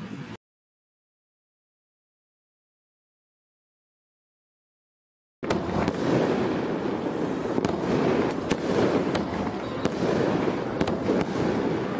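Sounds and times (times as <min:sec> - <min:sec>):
fireworks crackling: 0:05.4 - 0:11.9
sharp firework cracks: 0:05.4 - 0:11.9.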